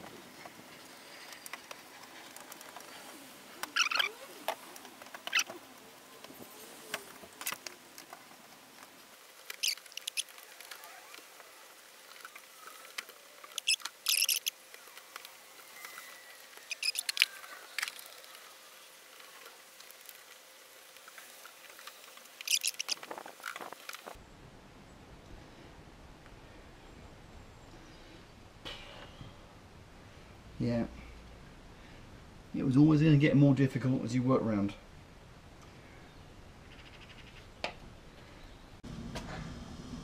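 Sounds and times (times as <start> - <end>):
rubber seal squeaking and scraping: 3.6 - 4.6, 5.2 - 5.6, 9.5 - 11.1, 13.5 - 14.5, 15.8 - 18.2, 22.4 - 23.7.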